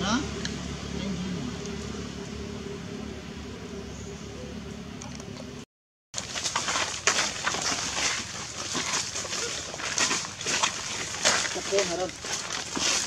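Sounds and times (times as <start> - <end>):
footsteps on dry leaves: 6.2 - 13.0.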